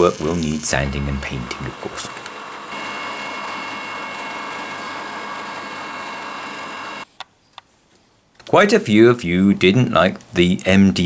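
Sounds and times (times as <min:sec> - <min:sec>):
spindle moulder whining: 0:00.0 - 0:07.1.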